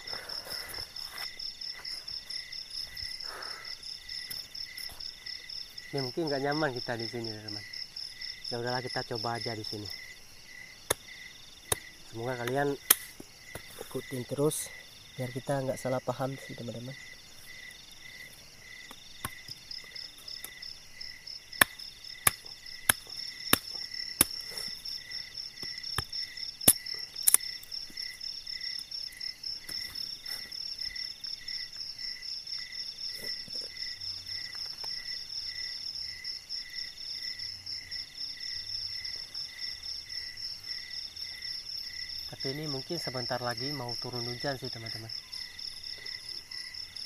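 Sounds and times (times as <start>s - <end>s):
insects trilling: 0.0s - 47.0s
pulsing insect chirp: 0.0s - 47.0s
sharp snaps: 10.8s - 13.3s, 25.6s - 27.8s.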